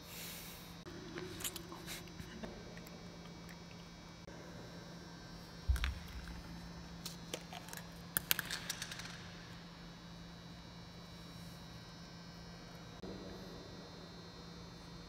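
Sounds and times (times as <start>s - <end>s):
electrical hum: 0.0s - 15.0s
plastic pill bottle clicks and rattles: 7.1s - 9.3s.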